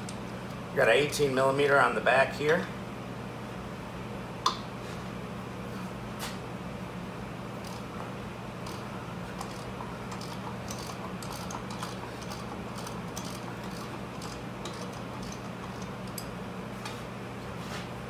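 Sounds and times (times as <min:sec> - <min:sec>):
steady low hum: 0:00.0 - 0:18.0
ratchet wrench clicking: 0:09.4 - 0:16.3.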